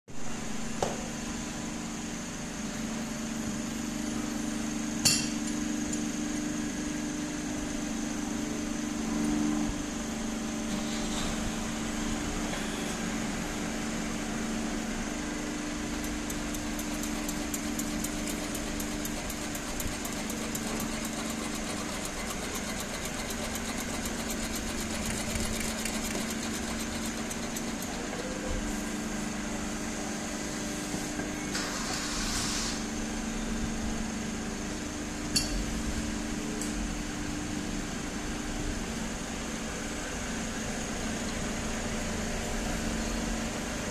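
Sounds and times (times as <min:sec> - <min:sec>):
machinery humming: 0:00.2 - 0:31.8.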